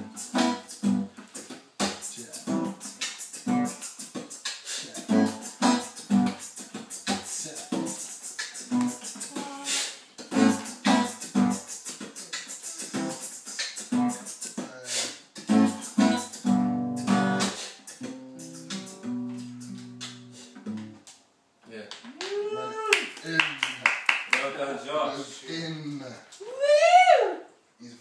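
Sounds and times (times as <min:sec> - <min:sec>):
acoustic guitar strumming chords: 0:00.0 - 0:14.4, 0:15.4 - 0:21.0.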